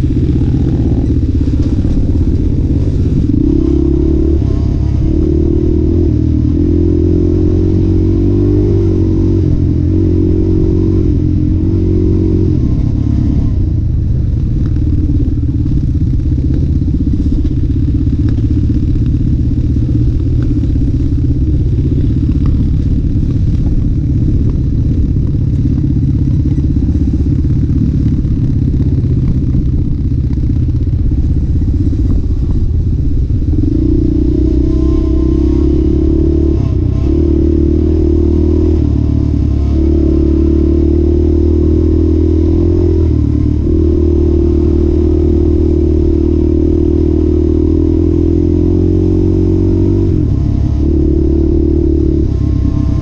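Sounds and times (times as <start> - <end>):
off-road vehicle engine: 0.0 - 53.0.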